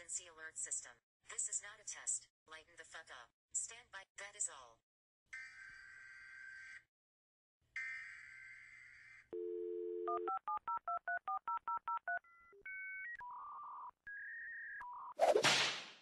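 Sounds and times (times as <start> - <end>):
telephone dial tone: 9.4 - 12.3
touch-tone digits dialed: 9.4 - 12.4.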